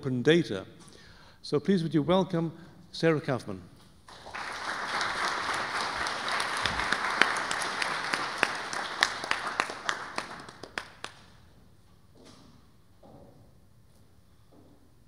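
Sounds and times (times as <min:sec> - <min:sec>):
audience applauding: 0:04.1 - 0:11.4.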